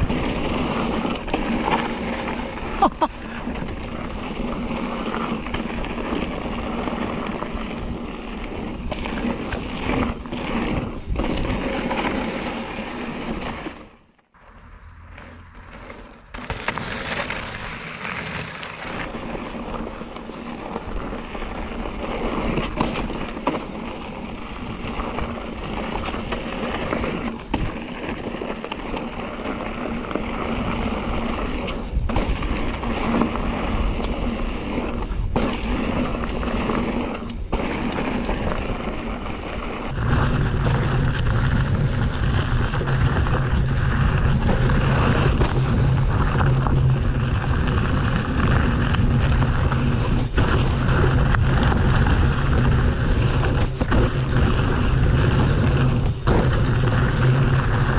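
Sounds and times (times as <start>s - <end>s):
wind noise on microphone: 0.0s - 13.7s, 14.3s - 57.9s
bike tyres rolling over loose ground: 0.0s - 57.9s
bike rattling and knocking: 14.6s - 57.9s.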